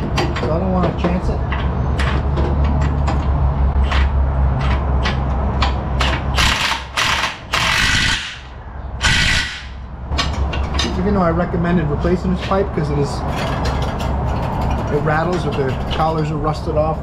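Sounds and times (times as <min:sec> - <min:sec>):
impact wrench hammering: 0:03.8 - 0:10.9.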